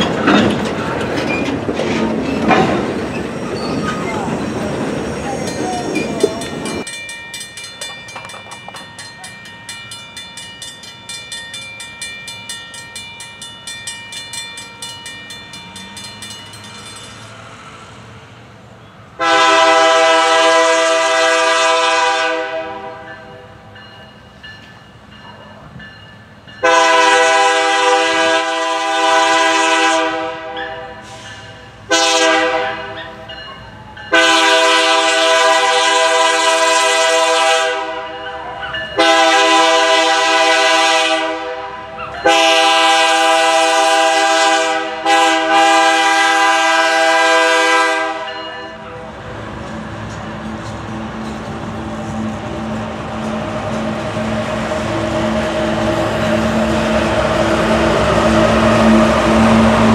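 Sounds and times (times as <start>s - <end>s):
crossing bell ringing: 2.2s - 18.0s, 22.8s - 28.0s, 30.4s - 37.0s, 37.8s - 49.2s
locomotive air horn blasts: 19.2s - 23.1s, 26.6s - 31.2s, 31.9s - 33.0s, 34.1s - 38.1s, 39.0s - 48.4s.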